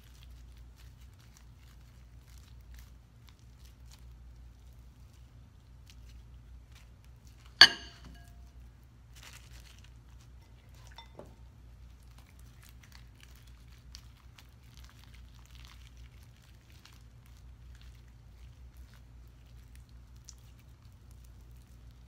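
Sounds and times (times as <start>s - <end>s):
slime squishing: 0.0s - 7.6s, 8.2s - 22.0s
sharp ringing clink: 7.6s - 8.4s.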